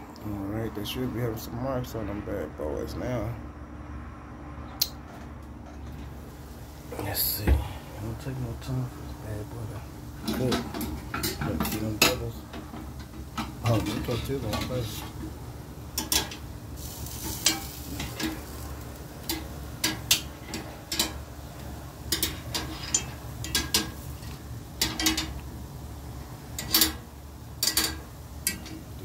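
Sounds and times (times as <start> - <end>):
steady low hum: 0.0 - 29.0
metal tongs clicking on grill grate: 16.0 - 18.4, 19.2 - 25.5, 26.6 - 27.0, 27.6 - 28.9.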